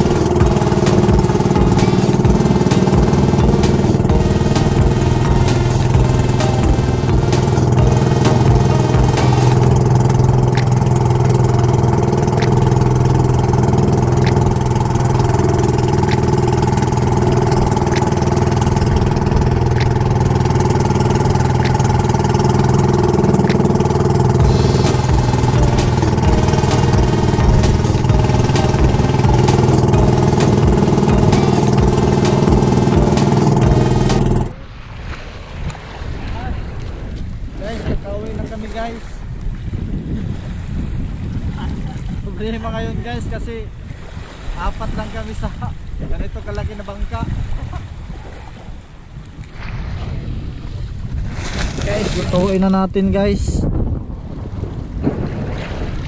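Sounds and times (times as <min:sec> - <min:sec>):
boat engine running: 0:00.0 - 0:34.8.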